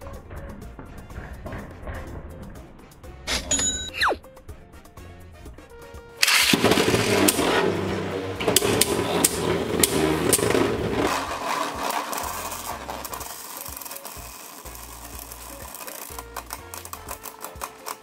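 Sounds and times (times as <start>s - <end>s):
spinning tops clashing clicks: 3.3s - 4.2s, 11.1s - 18.0s
spinning tops whirring: 8.5s - 18.0s.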